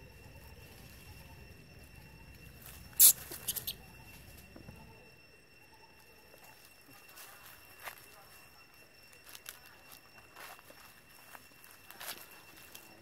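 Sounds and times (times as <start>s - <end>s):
baby monkey squeaking: 2.9s - 4.0s.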